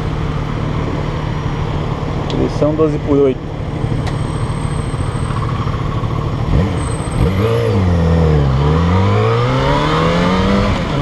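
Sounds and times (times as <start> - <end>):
motorcycle engine revving: 4.9 - 11.0.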